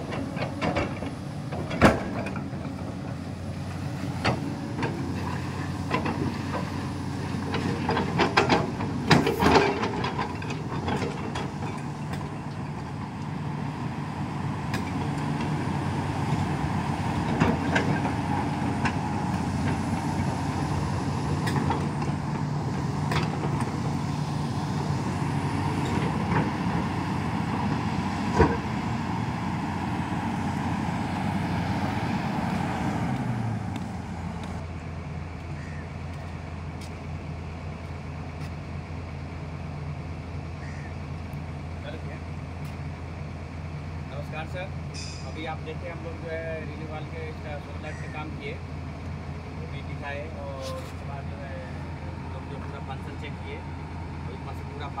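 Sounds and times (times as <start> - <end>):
excavator engine and hydraulics humming: 0.0 - 55.0
sharp metal clanks: 44.9 - 45.4.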